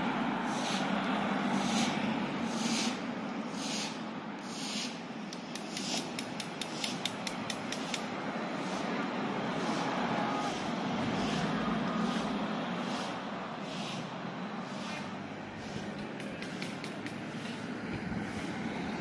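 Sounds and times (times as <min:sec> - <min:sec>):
passing cars hum: 0:00.0 - 0:19.0
rapid light ticks: 0:05.3 - 0:08.1.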